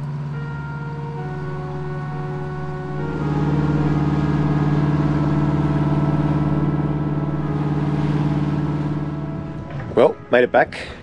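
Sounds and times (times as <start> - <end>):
boat diesel engine drone: 0.0 - 11.0.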